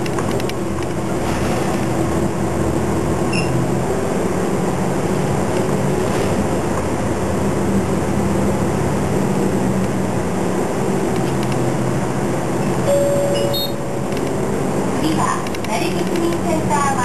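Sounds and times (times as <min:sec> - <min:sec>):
bus engine running: 0:00.0 - 0:17.0
road noise: 0:00.0 - 0:17.0
short steady tone: 0:12.8 - 0:13.9.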